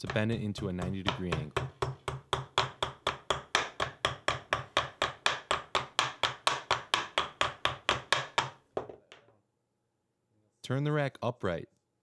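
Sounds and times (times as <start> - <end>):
hammer tapping steel wire mesh: 0.0 - 8.6.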